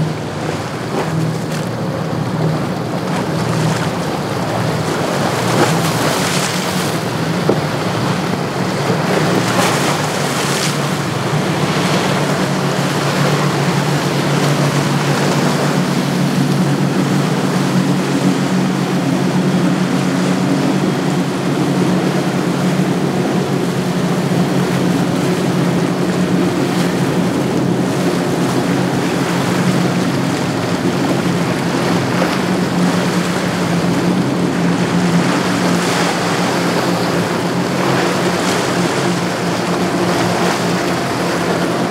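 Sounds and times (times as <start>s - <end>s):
outboard engines droning: 0.0s - 41.9s
rushing wake and surf: 0.0s - 41.9s
wind buffeting microphone: 0.0s - 41.9s.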